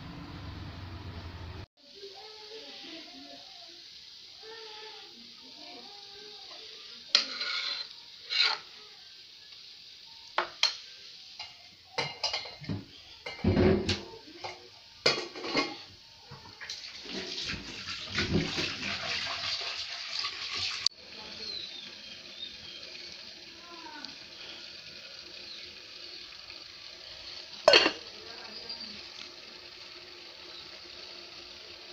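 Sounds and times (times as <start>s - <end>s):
metal pots clinking and knocking: 11.4s - 15.9s, 27.6s - 28.0s.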